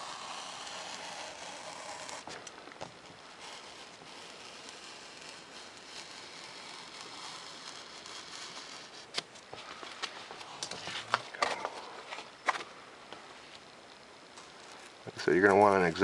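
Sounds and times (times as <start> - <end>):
knife blade cutting paper: 0.0 - 9.3
paper rustling and crinkling: 0.7 - 12.8.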